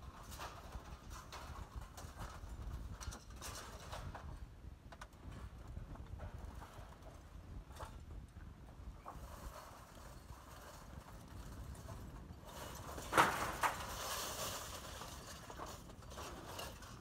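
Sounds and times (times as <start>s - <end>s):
scrap metal clinking and clattering: 9.0s - 17.0s.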